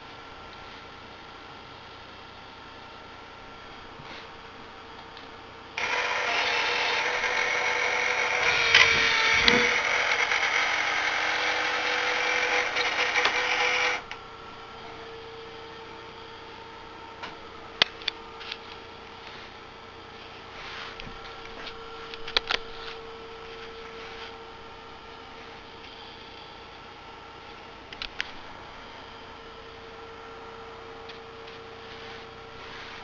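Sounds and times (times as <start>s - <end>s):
electric gear motor running: 5.8s - 14.2s.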